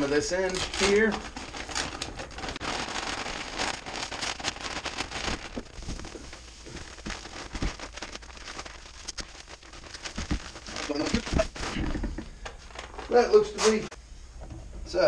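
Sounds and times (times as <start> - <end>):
bag crinkling: 0.0 - 13.8.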